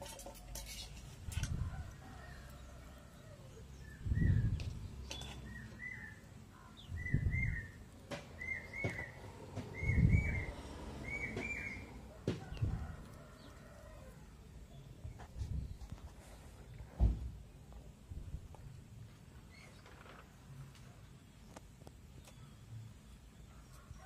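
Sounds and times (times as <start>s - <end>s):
low handling thuds and clicks: 16.8s - 17.4s.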